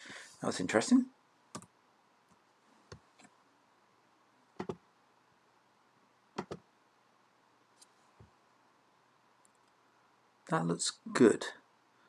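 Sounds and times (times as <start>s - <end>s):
computer mouse clicking: 4.6s - 4.8s, 6.4s - 6.6s.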